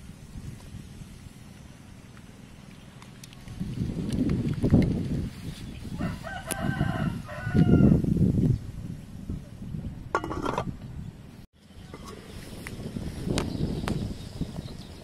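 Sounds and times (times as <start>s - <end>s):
rooster crowing: 6.0s - 8.0s.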